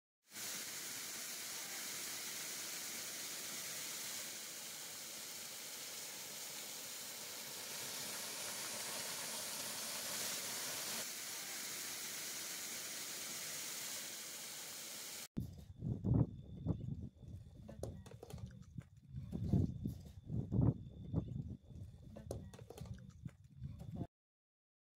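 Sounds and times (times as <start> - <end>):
waterfall splashing onto rock: 0.3 - 15.3.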